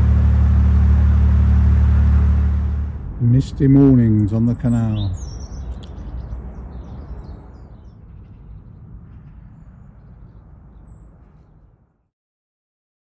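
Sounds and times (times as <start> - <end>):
low steady rumble: 0.0 - 11.9.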